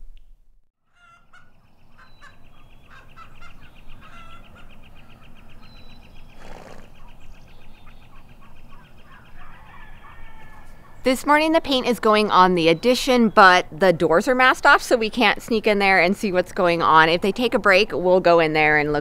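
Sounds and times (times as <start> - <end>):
birds chirping: 0.8 - 19.0
bird trilling: 0.9 - 13.6.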